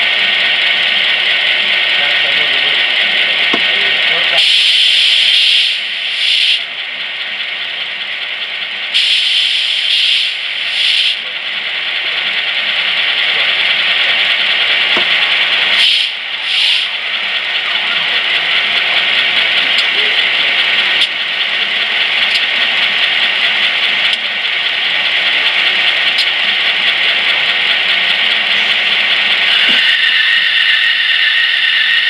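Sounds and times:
model locomotive speaker hissing: 0:00.0 - 0:32.0
short sharp hisses: 0:04.4 - 0:06.6, 0:09.0 - 0:11.2, 0:15.8 - 0:16.9.

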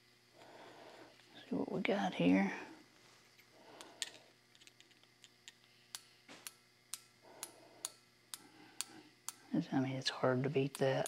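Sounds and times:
faint clicks of metal parts: 0:03.4 - 0:09.5.

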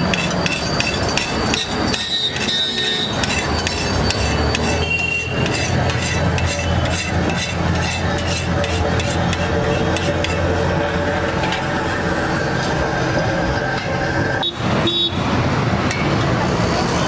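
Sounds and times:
metal scraper scraping griddle: 0:00.0 - 0:11.8.

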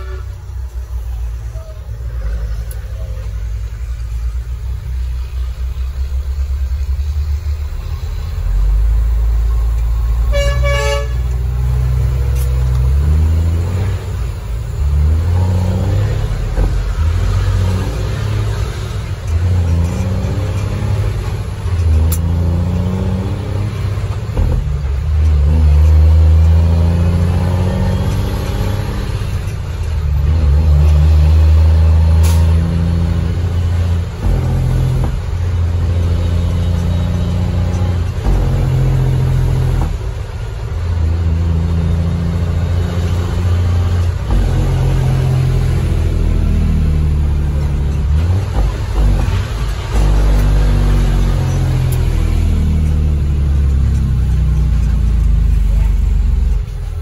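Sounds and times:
truck horn toot: 0:00.0 - 0:00.7, 0:10.2 - 0:11.9
truck diesel engine under load: 0:00.0 - 0:57.0.

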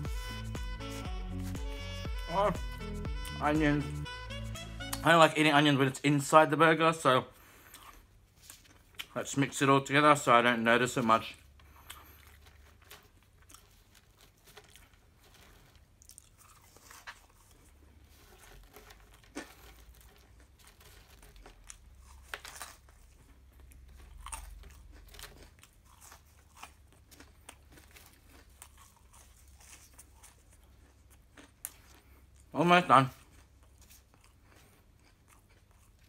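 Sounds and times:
chewing and crunching food: 0:07.4 - 0:10.3, 0:10.9 - 0:36.0.

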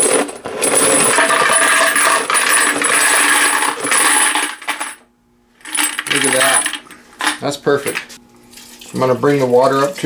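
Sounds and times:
brass cartridge cases jingling: 0:05.7 - 0:08.0.

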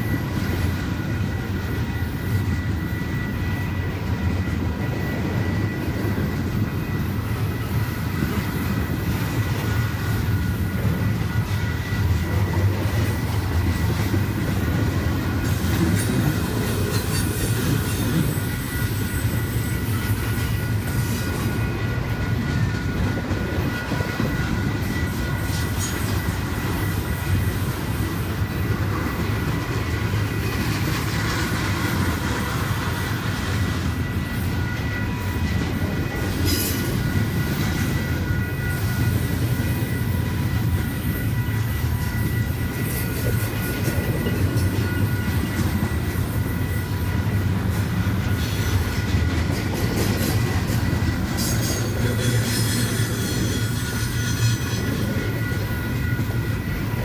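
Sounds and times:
freight train rumbling past: 0:00.0 - 0:57.0
high wheel squeal: 0:00.0 - 0:57.0.

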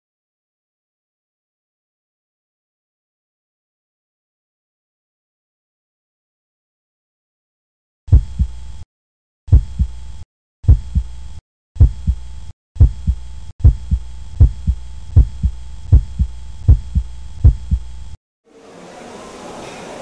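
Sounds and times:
heartbeat-like double thumps: 0:08.1 - 0:08.8, 0:09.5 - 0:18.2
steady low hum: 0:08.1 - 0:08.8, 0:09.5 - 0:18.2.

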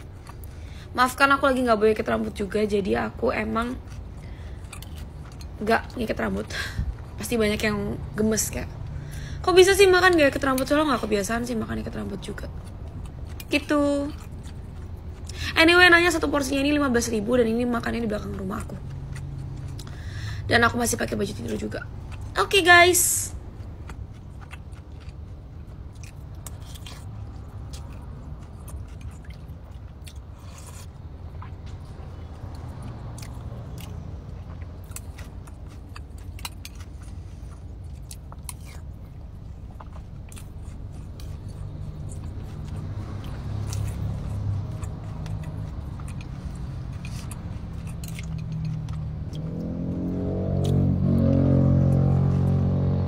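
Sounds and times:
chewing and mouth clicks: 0:00.0 - 0:00.9, 0:03.5 - 0:07.2, 0:10.0 - 0:15.6, 0:18.1 - 0:20.1, 0:21.1 - 0:22.4, 0:23.3 - 0:50.8
steady low hum: 0:00.0 - 0:53.0.

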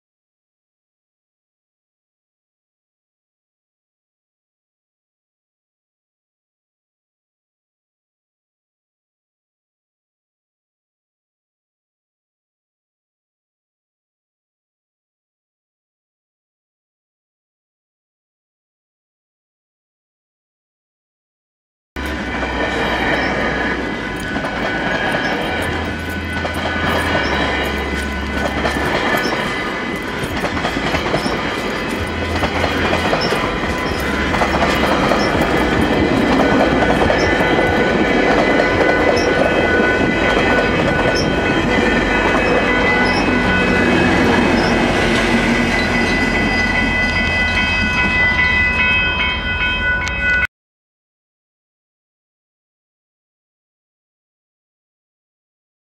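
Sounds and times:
train wheels clacking over rails: 0:22.0 - 0:48.8
crossing warning bells ringing: 0:22.0 - 0:50.5.

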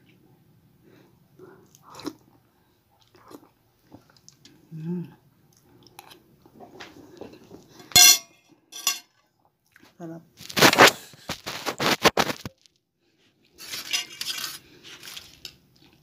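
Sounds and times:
chewing and mouth noises: 0:01.4 - 0:07.8
spoon clinking on plate: 0:07.9 - 0:09.1
metal spoon scooping: 0:13.6 - 0:15.3.

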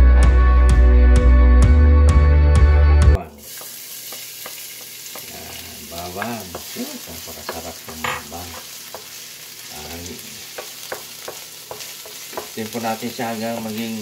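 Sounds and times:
garlic sizzling in oil: 0:03.2 - 0:14.0.

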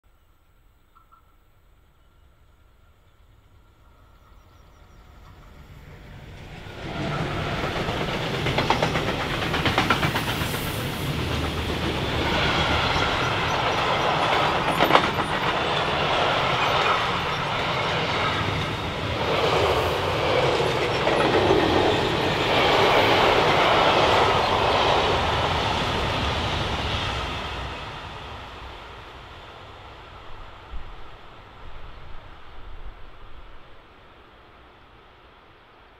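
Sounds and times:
freight train passing: 0:00.5 - 0:35.9
wheels clattering over rails: 0:07.2 - 0:23.3.

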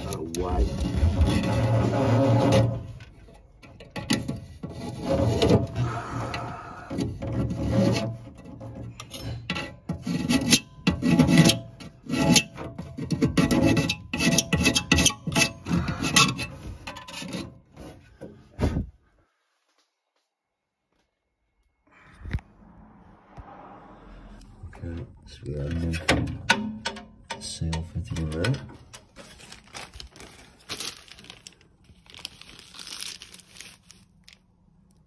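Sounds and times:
hand tool scraping metal: 0:00.0 - 0:18.2.

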